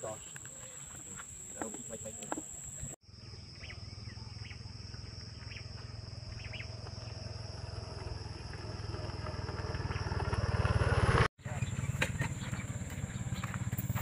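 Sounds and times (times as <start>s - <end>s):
high insect drone: 0.0s - 11.2s
small motorcycle engine pulsing: 3.5s - 14.0s.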